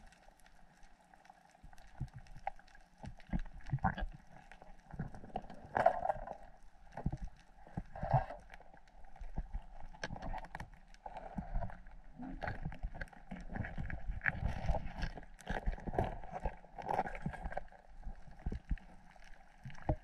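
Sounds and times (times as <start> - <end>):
underwater clicks and knocks: 1.8 - 20.0.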